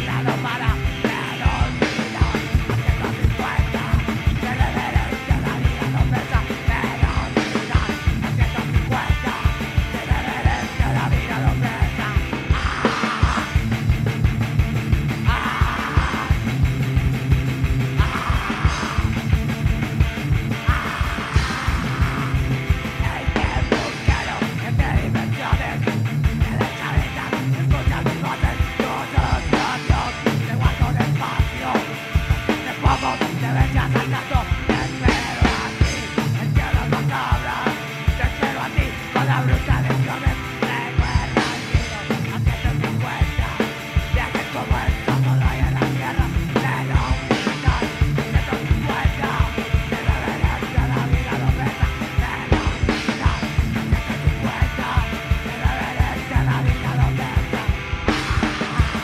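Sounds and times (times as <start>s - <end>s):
fast kick drum beat: 0.0s - 59.0s
punk rock band playing: 0.0s - 59.0s.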